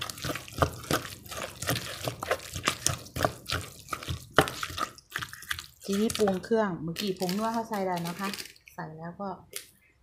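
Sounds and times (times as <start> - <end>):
pestle knocking in mortar: 0.0 - 5.3.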